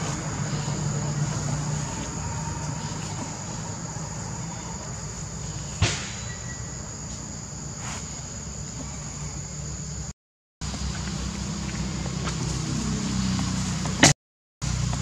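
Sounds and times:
high-pitched insect drone: 0:00.0 - 0:10.1
sharp knock: 0:05.8 - 0:06.3.

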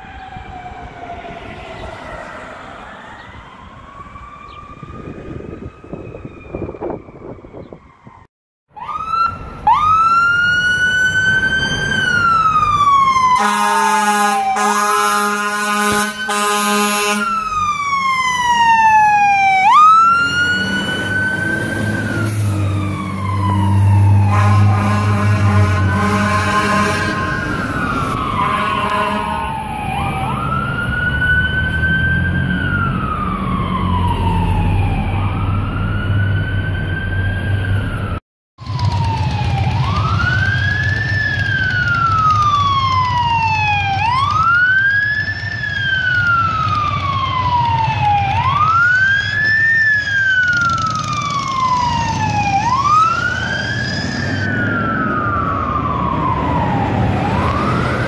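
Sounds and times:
fire truck siren wailing: 0:00.0 - 0:58.0
horn blast: 0:13.4 - 0:17.4, 0:24.2 - 0:27.3, 0:28.4 - 0:29.5.

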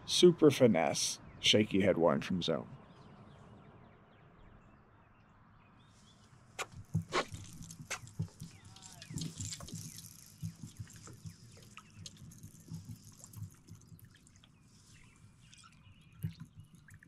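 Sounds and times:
water dripping and trickling: 0:06.8 - 0:17.0.

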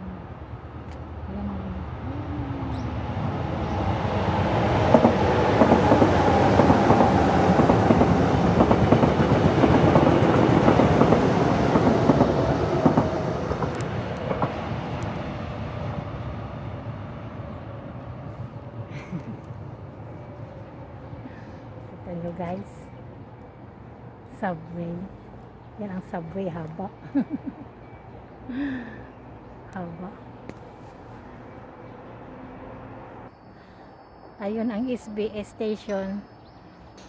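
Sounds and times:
subway train wheels rumbling on rails: 0:00.2 - 0:28.5.

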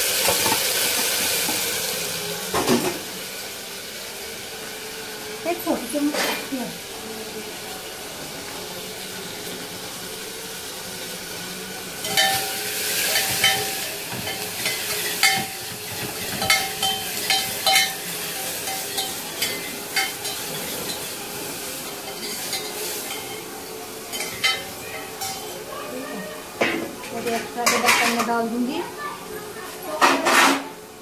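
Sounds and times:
masala sizzling in hot oil: 0:00.0 - 0:31.0
steel spoon scraping pot: 0:12.0 - 0:21.1.

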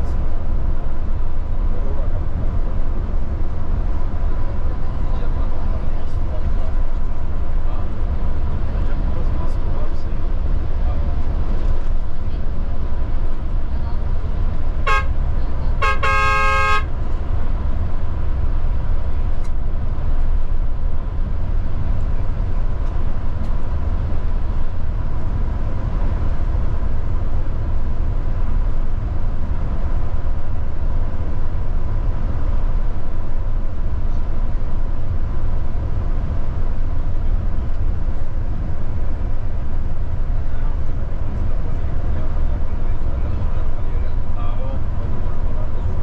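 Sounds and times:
coach rumbling on road: 0:00.0 - 0:46.0
vehicle horn: 0:14.8 - 0:15.2, 0:15.8 - 0:16.9.

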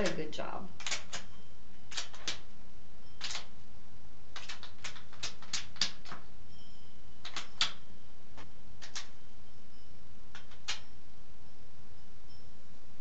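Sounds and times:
hen beak tapping floor: 0:00.0 - 0:02.5, 0:03.2 - 0:03.6, 0:04.3 - 0:06.3, 0:07.2 - 0:07.8, 0:08.4 - 0:09.2, 0:10.3 - 0:10.9.

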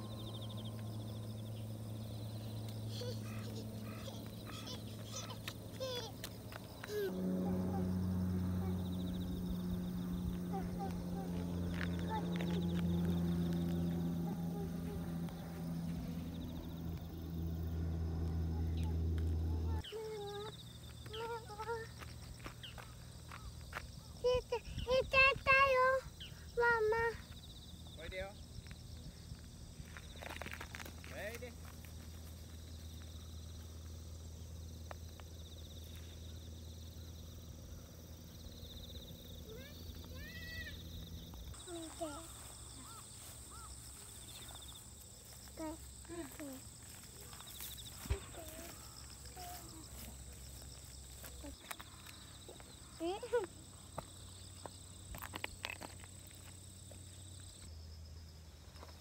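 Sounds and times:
aeroplane drone overhead: 0:00.0 - 0:20.8
faint insect chirr: 0:00.0 - 0:59.0.

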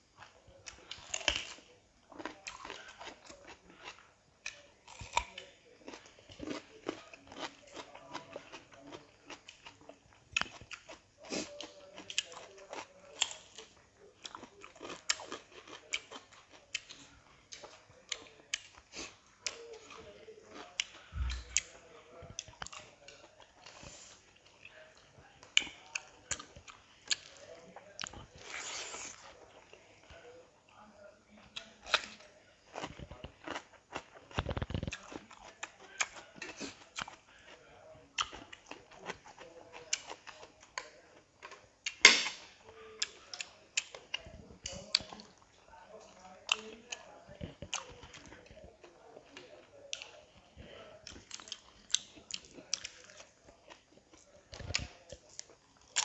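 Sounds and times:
chewing and crunching: 0:00.0 - 0:56.0.

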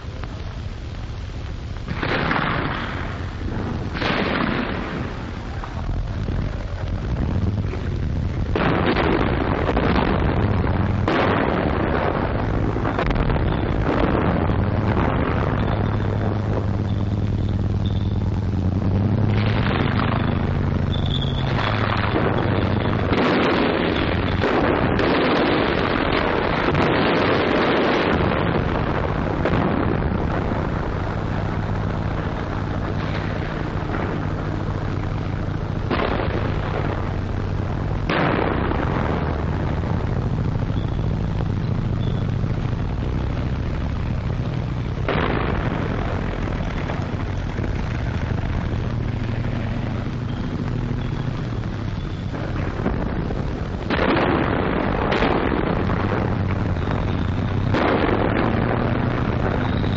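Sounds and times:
explosions: 0:00.0 - 0:59.9
low drone: 0:00.0 - 0:59.9
loud gunshot reports: 0:01.9 - 0:05.5, 0:08.5 - 0:16.0, 0:19.3 - 0:30.0, 0:35.9 - 0:37.1, 0:38.1 - 0:39.4, 0:53.9 - 0:59.9
gunfire: 0:01.9 - 0:30.6, 0:35.8 - 0:40.0, 0:44.2 - 0:59.9.

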